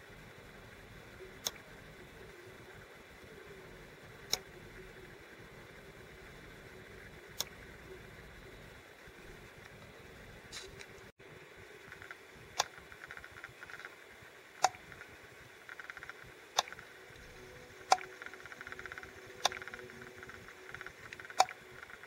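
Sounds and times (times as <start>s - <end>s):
faint fast ticking: 0.0s - 22.0s
sharp clicks: 4.3s - 4.5s, 11.8s - 14.0s, 14.6s - 22.0s.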